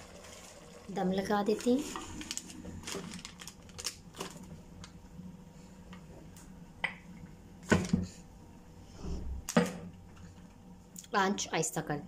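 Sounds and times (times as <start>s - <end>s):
newspaper rustling and crinkling: 1.5s - 4.9s.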